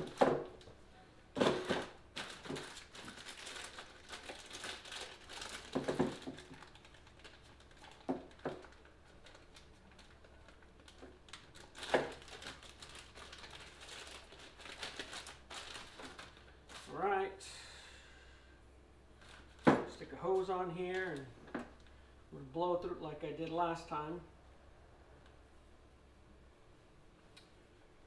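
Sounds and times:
plastic bag crinkling: 1.3s - 17.0s, 19.2s - 21.3s.

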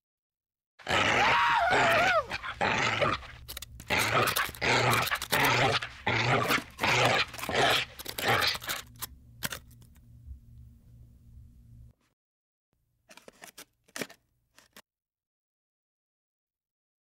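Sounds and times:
cartoon dog growling and snarling: 0.8s - 8.9s.

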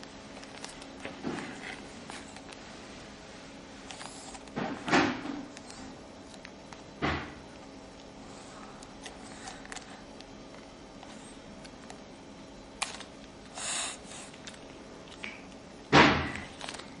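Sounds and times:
small clicks and handling noise: 0.3s - 2.6s, 5.5s - 6.9s, 8.8s - 12.1s, 12.8s - 13.4s, 14.3s - 15.6s, 16.4s - 17.0s.

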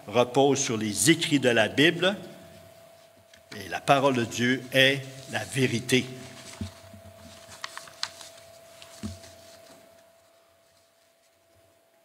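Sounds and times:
electrical hum: 0.0s - 12.0s
paper pages rustling: 3.0s - 11.6s.

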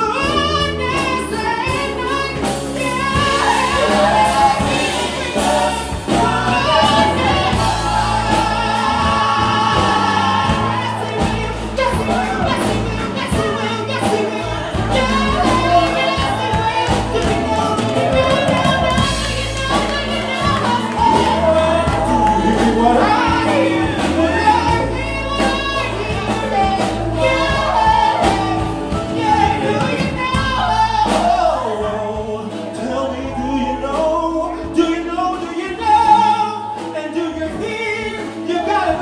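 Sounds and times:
band playing bass guitar and drums: 0.0s - 39.0s
man singing into a microphone: 20.8s - 39.0s.

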